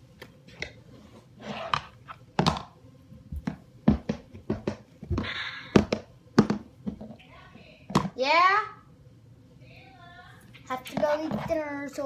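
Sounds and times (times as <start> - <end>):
plastic toy tapping on wooden floor: 3.4 - 7.2.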